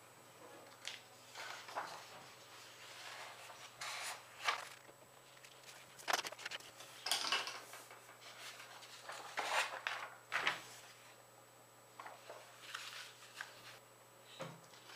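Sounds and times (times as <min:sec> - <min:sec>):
paper rustling and swishing: 0:01.2 - 0:07.0, 0:12.2 - 0:13.8.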